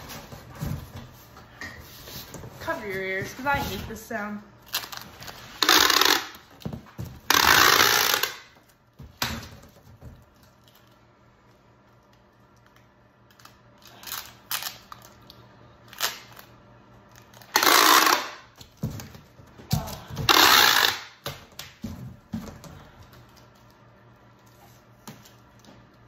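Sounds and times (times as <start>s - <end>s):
packing tape ripping: 4.7s - 6.6s, 7.2s - 8.6s, 13.3s - 16.5s, 17.1s - 19.2s, 19.8s - 21.4s
tape dispenser handling: 4.7s - 6.6s, 7.3s - 8.6s, 13.3s - 16.5s, 17.1s - 18.5s, 20.2s - 21.3s.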